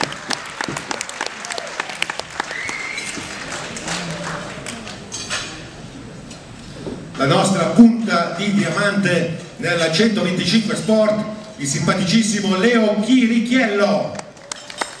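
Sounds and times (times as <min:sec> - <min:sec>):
audience applauding: 0:00.0 - 0:05.1, 0:14.2 - 0:15.0.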